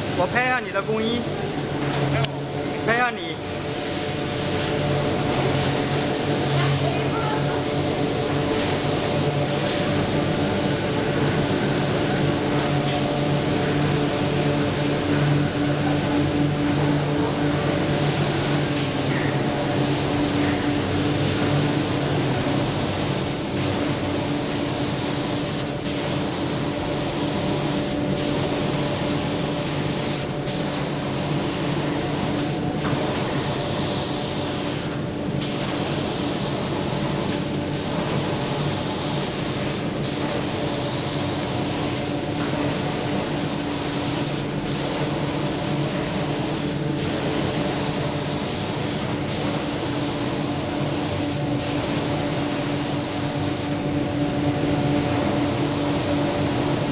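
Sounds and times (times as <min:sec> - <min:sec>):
steady machine hum: 0:00.0 - 0:56.9
spray guns hissing: 0:18.3 - 0:53.8, 0:55.0 - 0:56.9.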